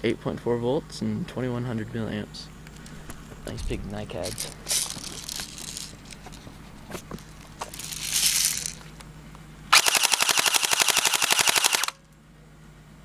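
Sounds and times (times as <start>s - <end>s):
airsoft rifle full-auto burst: 9.7s - 12.0s.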